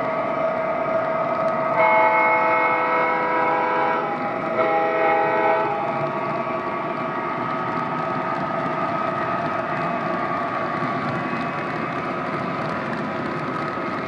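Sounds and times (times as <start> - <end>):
model train cars rumbling: 0.0 - 14.0
model locomotive horn: 1.8 - 6.0.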